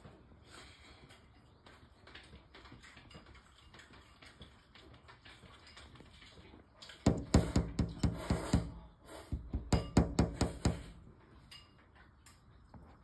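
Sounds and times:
knocking on hard surface: 0:07.1 - 0:08.8, 0:09.4 - 0:11.0.

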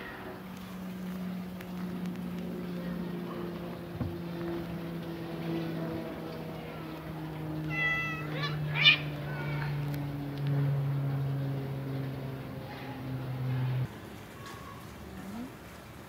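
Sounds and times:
cat meowing: 0:07.6 - 0:09.4
harsh cat cry: 0:07.7 - 0:09.1.

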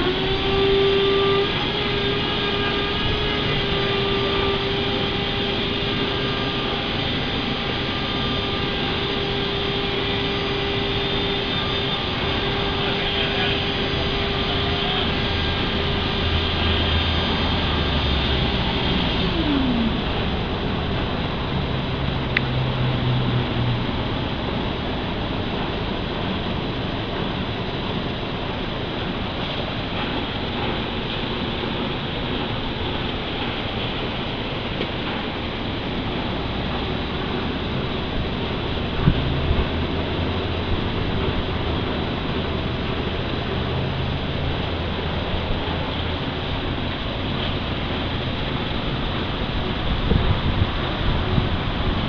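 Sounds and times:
motor-driven machine whining: 0:00.0 - 0:22.8
low hum: 0:00.0 - 0:52.0
noisy background: 0:00.0 - 0:52.0.

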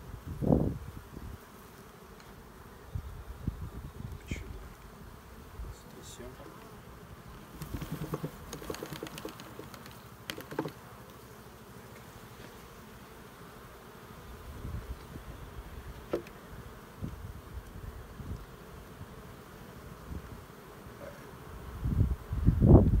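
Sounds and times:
honeybees buzzing: 0:00.0 - 0:23.0
wooden frames knocking and scraping: 0:07.6 - 0:09.7.

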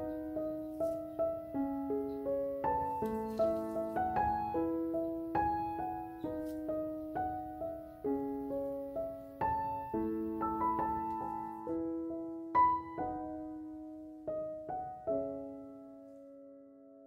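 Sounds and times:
gentle solo piano melody: 0:00.0 - 0:17.0.

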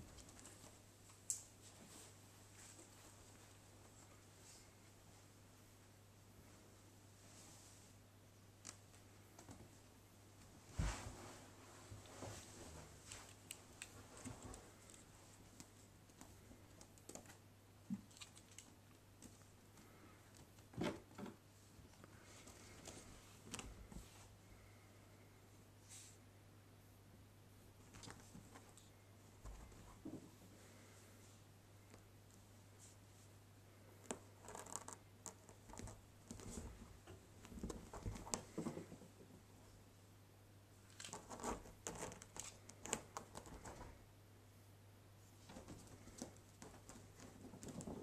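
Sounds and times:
rustling of quilted fabric: 0:10.4 - 0:15.6.

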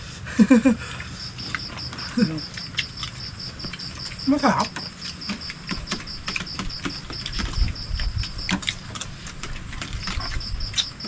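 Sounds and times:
insect chirping in high pulses: 0:00.5 - 0:09.0.

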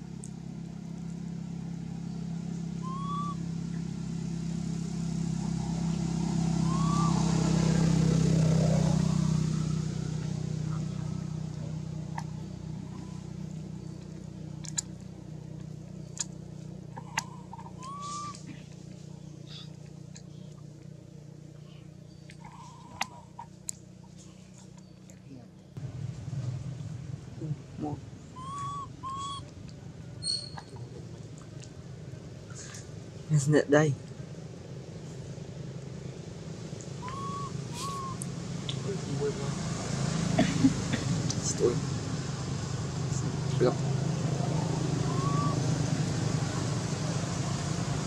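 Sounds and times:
vehicle engine passing by: 0:00.0 - 0:48.0
short rising chirps: 0:02.8 - 0:03.4, 0:05.8 - 0:07.8, 0:37.0 - 0:38.2, 0:44.6 - 0:45.7.

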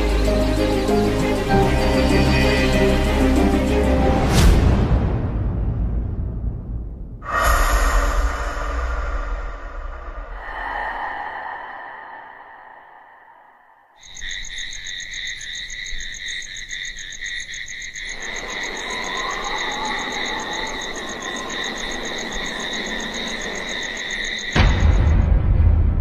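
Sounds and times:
wind hiss: 0:07.2 - 0:14.2
pulsing trill of frogs or insects: 0:10.4 - 0:25.3.

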